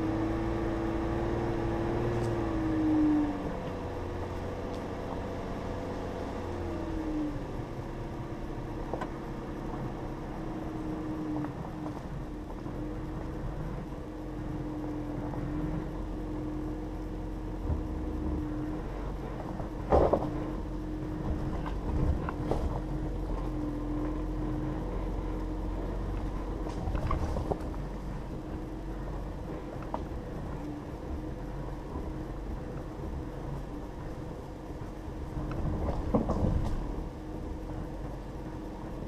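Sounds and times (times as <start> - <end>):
engine and tyre noise: 0.0 - 39.0
vehicle knocks and thumps: 17.6 - 18.5, 19.4 - 24.3, 26.2 - 34.2, 34.8 - 38.2.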